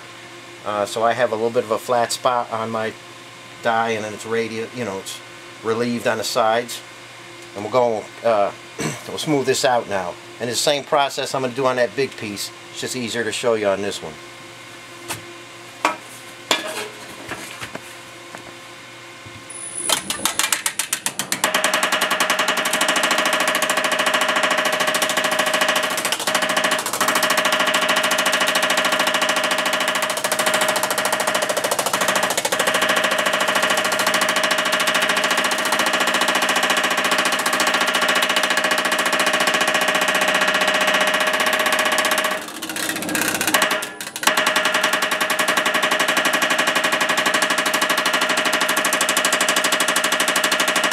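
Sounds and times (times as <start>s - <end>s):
power hammer hammering: 19.8s - 50.9s.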